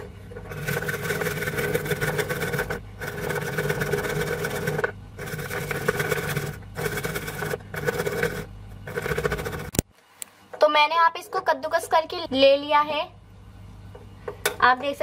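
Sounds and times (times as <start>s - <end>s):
ginger scraping on grater: 0.5s - 9.8s.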